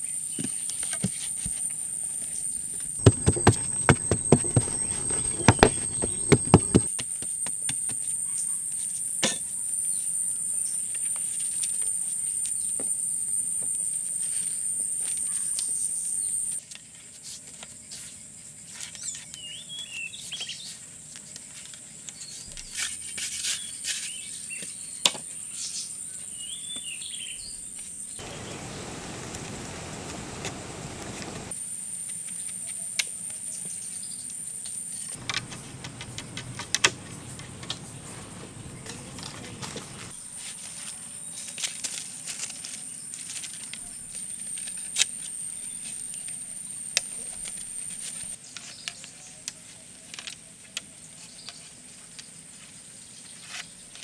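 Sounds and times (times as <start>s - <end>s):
insects high-pitched whine: 0.1s - 8.2s, 28.0s - 33.7s, 34.4s - 40.2s
hand tools knocking: 3.0s - 6.9s, 35.2s - 40.1s
short bird calls: 3.0s - 6.9s, 28.2s - 31.5s, 35.2s - 40.1s.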